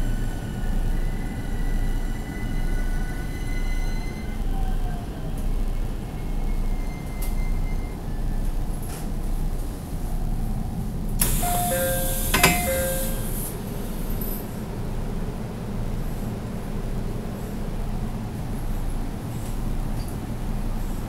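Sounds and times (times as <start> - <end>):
train car rumble: 0.0 - 21.0
click: 11.2 - 13.1
two-note door chime: 11.2 - 13.3
train doors air hiss: 11.2 - 14.6.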